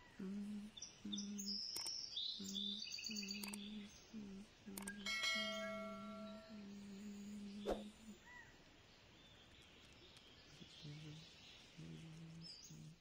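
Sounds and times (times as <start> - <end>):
birds chirping: 0.0 - 13.0
bright bell-like chime: 5.0 - 6.7.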